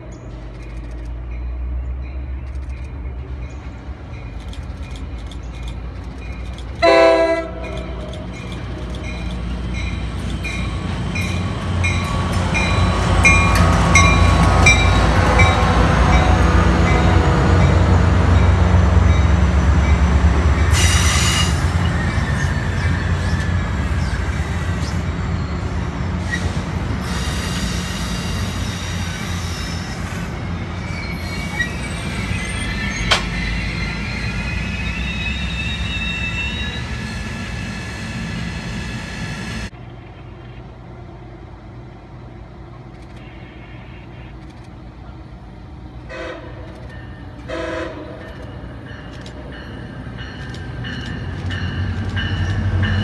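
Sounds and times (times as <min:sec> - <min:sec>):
approaching diesel locomotive: 0:00.0 - 0:53.0
train wheels rumbling on rails: 0:00.0 - 0:53.0
train horn toots: 0:06.8 - 0:08.4, 0:46.1 - 0:46.8, 0:47.4 - 0:48.6
high wheel squeal: 0:20.7 - 0:39.7.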